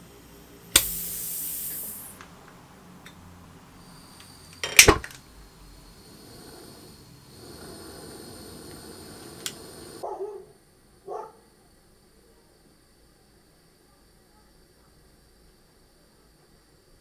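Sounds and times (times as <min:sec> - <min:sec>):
gas burner hissing: 0:00.0 - 0:10.1
gas burner ignition pop: 0:00.7 - 0:02.4, 0:04.2 - 0:05.3, 0:07.5 - 0:10.0.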